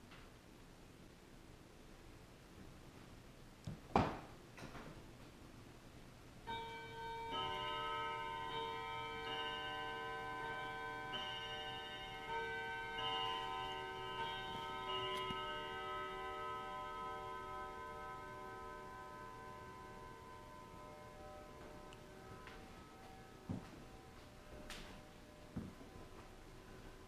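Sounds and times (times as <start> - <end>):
bell-like chime tones: 6.5 - 27.0.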